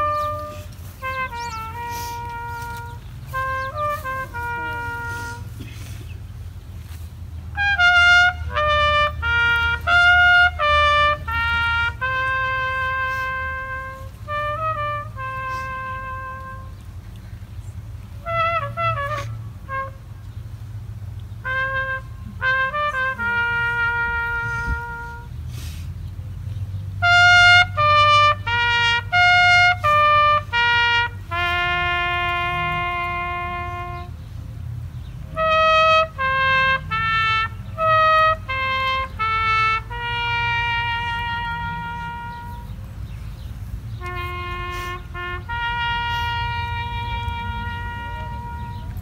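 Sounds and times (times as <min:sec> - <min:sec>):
trumpet playing bugle call: 0:00.0 - 0:20.6, 0:21.4 - 0:25.8, 0:26.9 - 0:34.4, 0:35.0 - 0:49.0.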